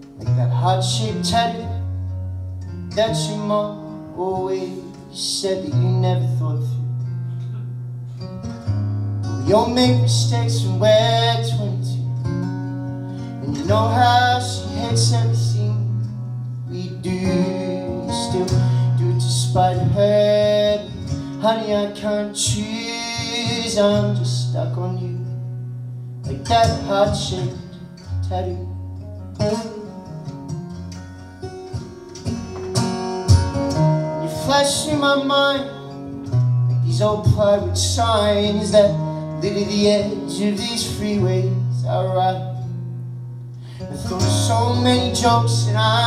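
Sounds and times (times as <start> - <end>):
acoustic guitar: 0.0 - 46.0
man singing: 0.2 - 1.9, 2.9 - 6.9, 9.4 - 12.4, 13.2 - 25.5, 26.2 - 30.2, 34.0 - 42.9, 43.8 - 46.0.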